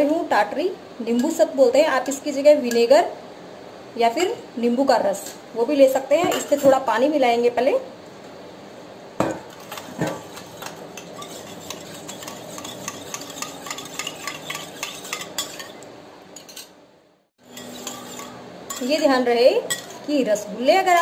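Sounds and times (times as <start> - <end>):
spoon clinking in steel bowl: 11.0 - 15.8.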